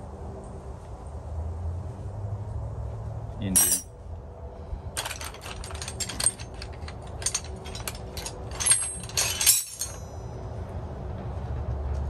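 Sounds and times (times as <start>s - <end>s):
metal tools clinking together: 3.5s - 3.9s, 5.0s - 10.2s
bright ringing clinks: 7.2s - 10.2s.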